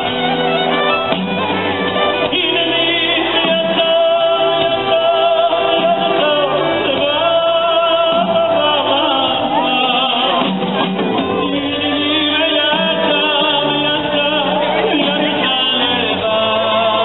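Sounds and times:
live band music: 0.0s - 17.0s
man singing into microphone: 2.0s - 17.0s.

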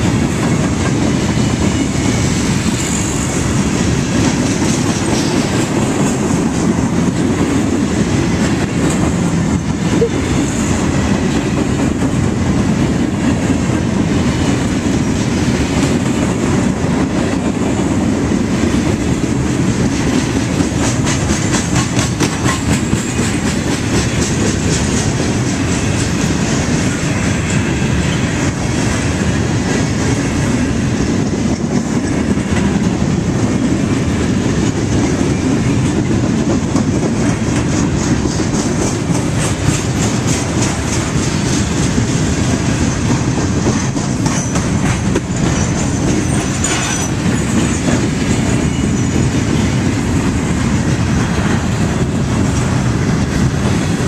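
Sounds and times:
train wheels rumbling on rails: 0.0s - 54.0s
wheels clicking over rail joints: 18.5s - 28.9s, 31.2s - 53.9s.

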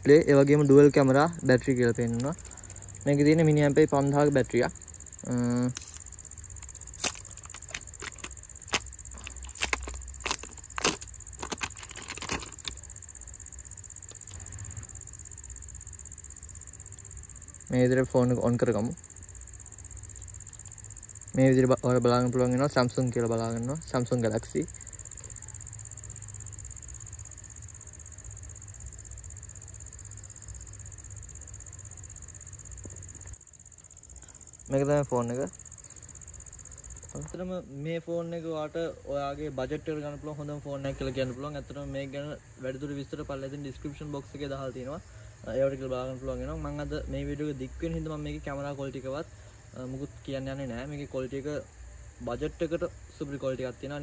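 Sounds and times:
insects trilling: 0.0s - 54.0s
plastic film crinkling: 5.7s - 12.8s.

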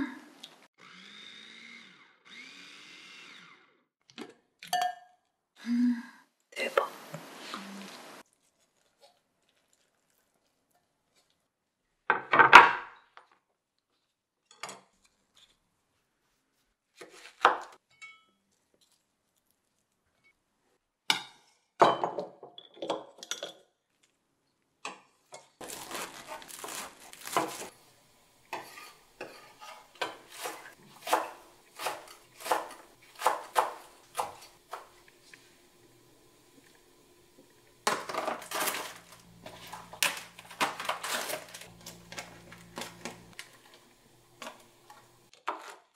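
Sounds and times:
knife chopping on wooden board: 28.5s - 34.9s.

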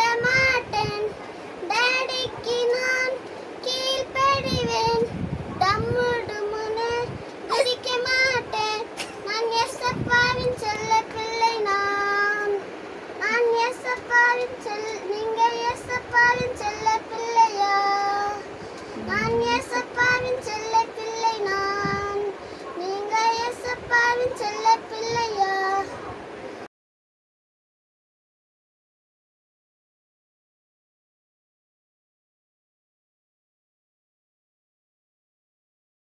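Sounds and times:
girl singing: 0.0s - 26.0s
short breaths: 18.6s - 19.1s, 22.4s - 22.8s.

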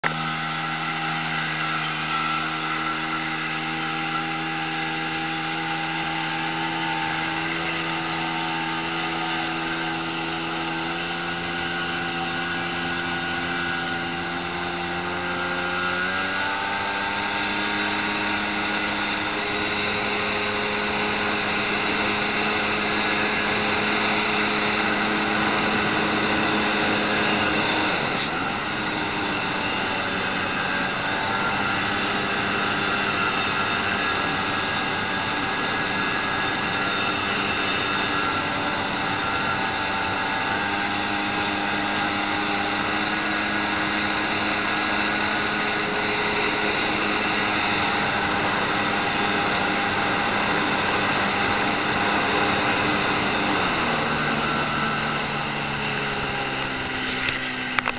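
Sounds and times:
motorboat engine running: 0.0s - 57.9s
hiss: 28.1s - 28.4s.

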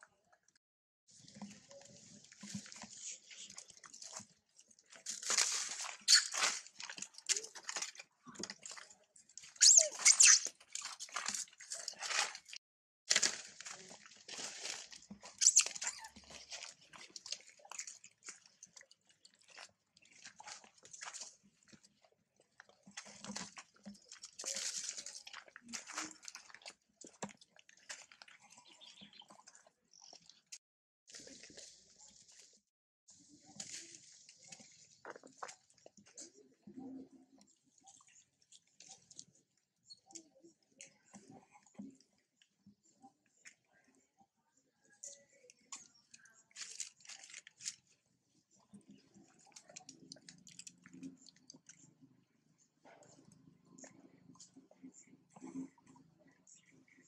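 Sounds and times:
macaques screeching and squealing: 9.6s - 10.5s.

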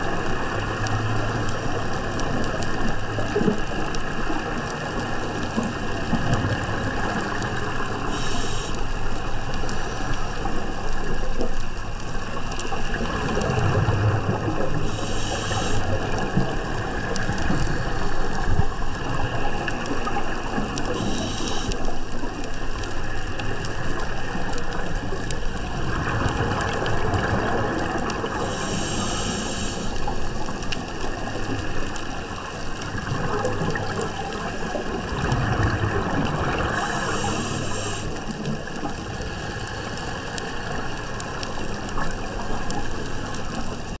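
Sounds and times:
exhaled bubbles: 0.0s - 44.0s
underwater water rush: 0.0s - 44.0s
scuba regulator breathing: 7.7s - 10.2s, 14.8s - 16.6s, 20.9s - 22.0s, 28.2s - 30.5s, 36.5s - 41.0s.

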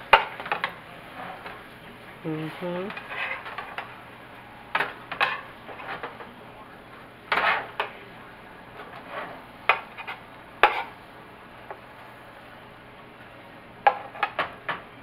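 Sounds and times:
metal spoon scraping a pan: 2.9s - 3.9s, 7.3s - 7.8s, 8.9s - 11.0s.

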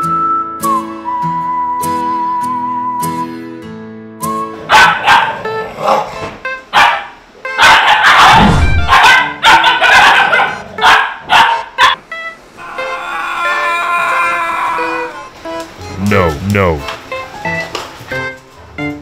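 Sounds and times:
light background music: 0.0s - 13.0s, 14.6s - 19.0s
dogs barking and yipping: 4.6s - 12.1s.

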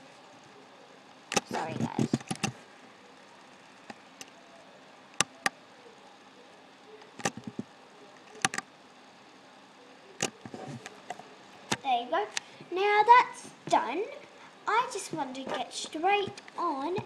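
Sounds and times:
computer mouse clicking: 7.0s - 7.7s, 8.3s - 8.6s.

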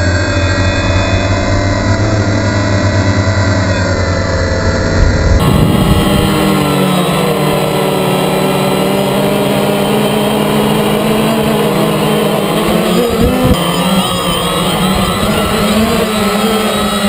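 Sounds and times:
drone propellers humming: 0.0s - 17.0s.

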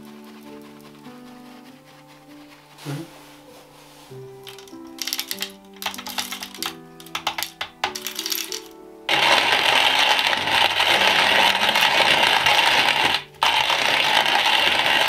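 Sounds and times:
beans rattling into hopper: 4.4s - 15.0s
coffee mill grinding: 4.5s - 15.0s.

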